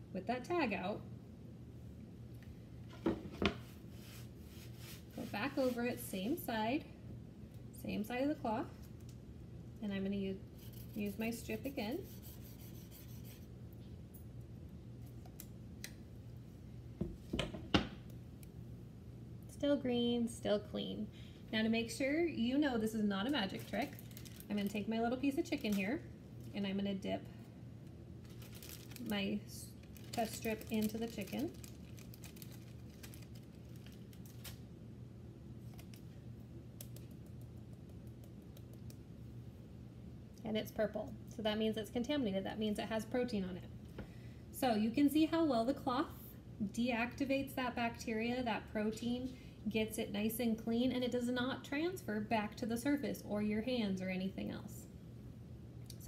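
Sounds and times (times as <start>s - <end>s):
low steady hum: 0.0s - 56.0s
plastic bag handling noises: 23.2s - 26.6s, 28.2s - 34.6s.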